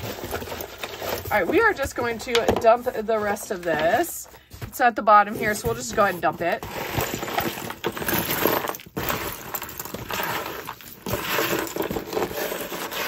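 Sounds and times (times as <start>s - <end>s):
jewelry rattling and clinking: 5.3s - 13.0s.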